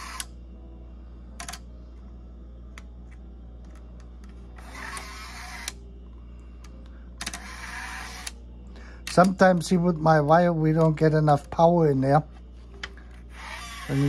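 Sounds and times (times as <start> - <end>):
electric motor humming: 0.0 - 0.5, 4.4 - 6.1, 7.2 - 8.6, 13.1 - 14.0.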